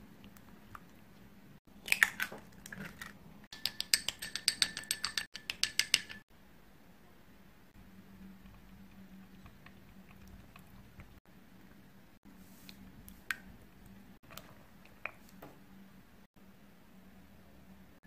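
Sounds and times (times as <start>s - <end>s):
spoon beating egg in glass bowl: 3.5s - 6.2s.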